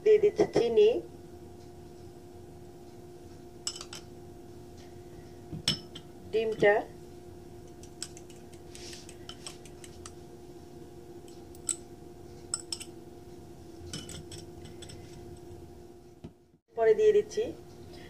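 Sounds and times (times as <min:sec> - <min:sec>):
faint steady hum: 0:00.0 - 0:18.0
kitchenware clinking on glass bowl: 0:03.7 - 0:04.1, 0:12.5 - 0:12.9, 0:13.9 - 0:15.2.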